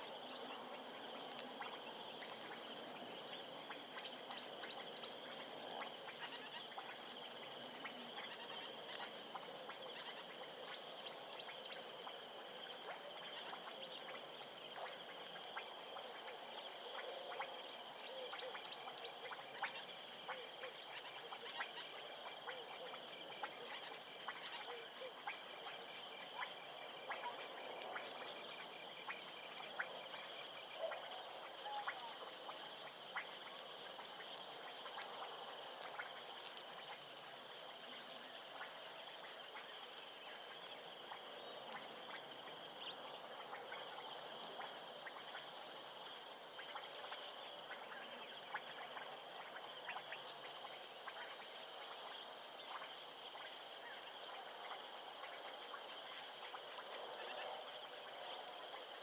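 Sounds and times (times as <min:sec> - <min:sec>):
faint bush ambience hiss: 0:00.0 - 0:59.0
insects chirping in pulses: 0:00.0 - 0:59.0
insects trilling: 0:00.0 - 0:59.0.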